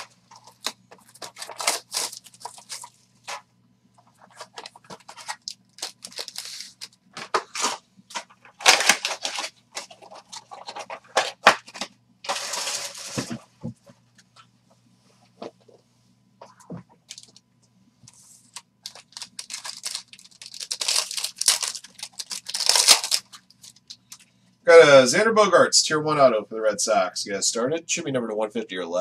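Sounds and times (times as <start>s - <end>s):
foil wrappers crinkling: 0.0s - 3.4s, 4.2s - 13.4s, 17.1s - 17.4s, 18.5s - 24.2s.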